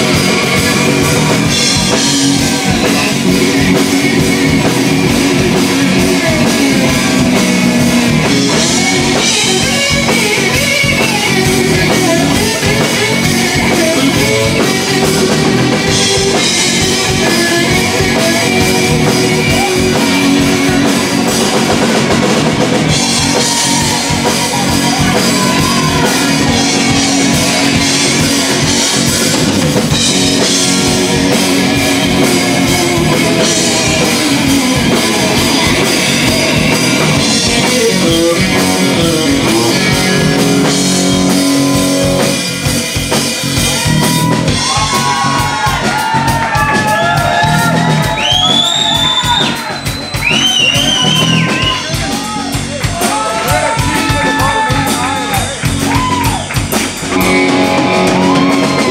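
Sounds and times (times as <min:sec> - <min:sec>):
electric guitar: 0:00.0 - 0:58.9
steady drum beat: 0:00.0 - 0:58.9.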